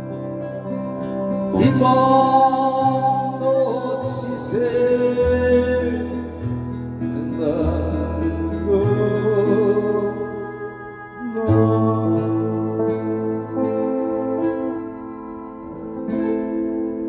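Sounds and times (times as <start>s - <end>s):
electric guitar lead melody: 0.0s - 17.0s
trot backing track: 4.2s - 17.0s.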